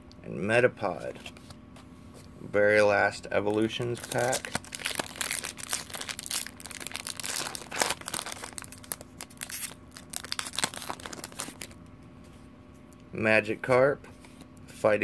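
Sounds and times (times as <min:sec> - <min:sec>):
foil wrapper crinkling and tearing: 0:03.5 - 0:11.8.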